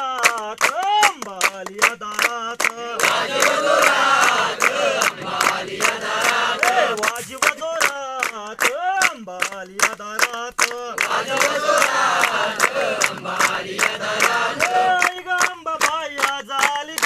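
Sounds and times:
group clapping in rhythm: 0.0s - 17.0s
group chanting: 2.6s - 7.5s, 10.9s - 15.3s.

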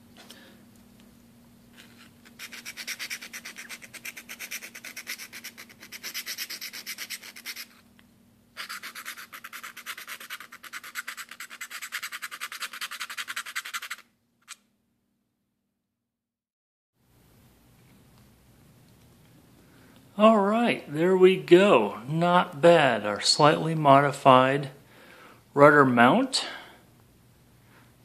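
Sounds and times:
file rasping in metal: 2.3s - 7.8s, 8.6s - 14.0s.

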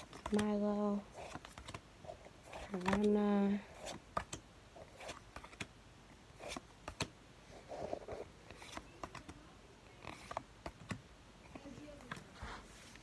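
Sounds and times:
cards clicking and tapping: 0.0s - 1.8s, 2.5s - 4.4s, 5.0s - 5.7s, 6.4s - 7.2s, 8.5s - 11.0s
soft card rustle: 0.0s - 5.7s, 6.3s - 13.0s.

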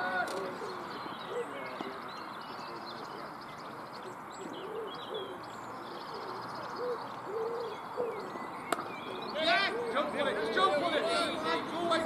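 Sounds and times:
steady outdoor hiss: 0.0s - 12.0s
small birds chirping: 0.1s - 12.0s
pigeon cooing: 0.4s - 1.8s, 4.0s - 8.4s, 9.1s - 10.6s.

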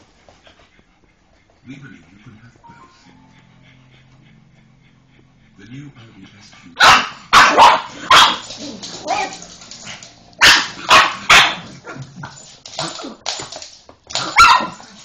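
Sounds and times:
dog barking: 6.8s - 9.5s, 10.4s - 12.1s, 14.2s - 15.0s
small dog yapping: 14.2s - 14.8s.

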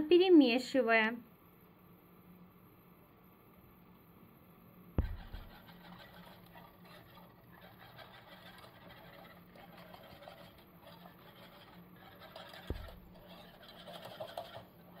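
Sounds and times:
low steady hum: 0.0s - 7.6s, 9.3s - 15.0s
whisk scraping metal saucepan: 5.2s - 15.0s.

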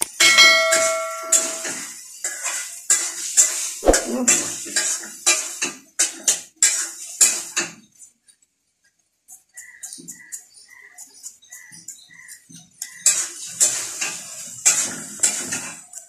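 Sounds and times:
brief metallic ring: 0.2s - 1.8s.

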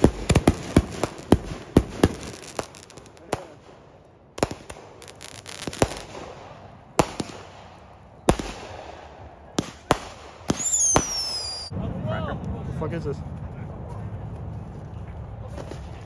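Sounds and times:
fireworks banging: 0.0s - 11.7s
whistling firework: 4.4s - 11.7s.

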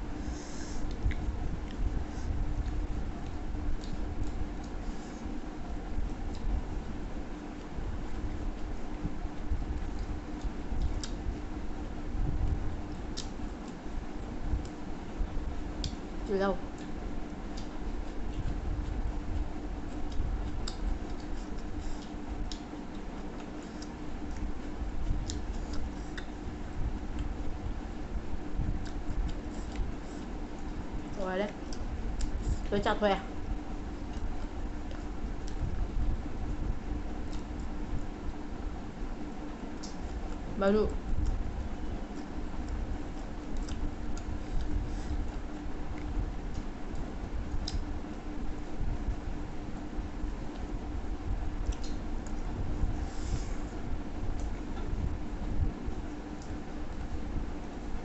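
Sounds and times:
steady low hum: 0.0s - 58.0s
eating clicks and crackles: 2.5s - 6.7s, 7.6s - 11.5s, 12.9s - 15.0s, 15.7s - 27.5s, 28.6s - 32.7s, 41.1s - 47.9s, 51.6s - 52.5s
chewing mouth sounds: 8.5s - 11.4s, 16.7s - 27.5s, 41.1s - 47.9s.

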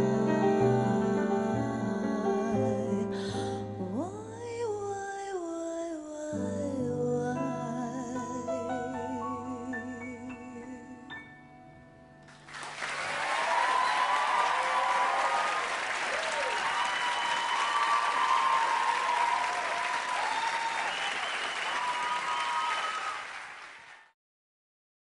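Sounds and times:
audience applause: 12.3s - 24.1s
people cheering and whooping: 12.8s - 23.4s.

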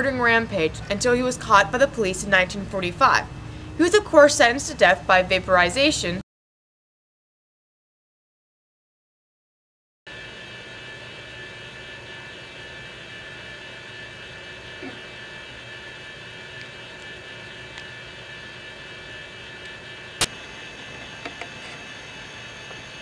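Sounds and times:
room tone hum and hiss: 10.2s - 23.0s.

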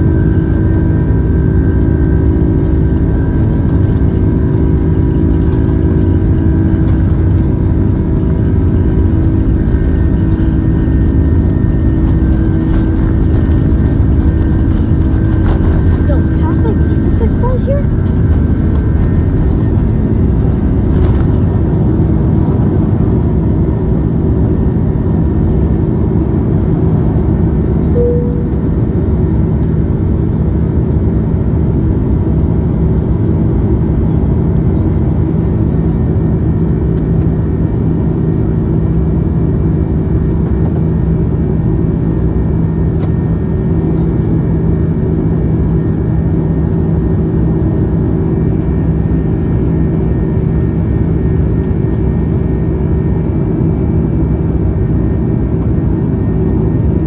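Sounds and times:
jet engines roaring: 0.0s - 30.3s
brief higher tone: 27.8s - 28.9s.

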